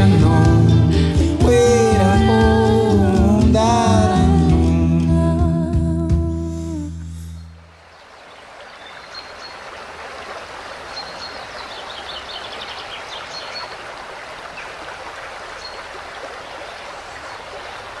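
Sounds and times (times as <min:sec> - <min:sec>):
bird chirps: 0:07.4 - 0:09.6
stream water rushing: 0:07.6 - 0:18.0.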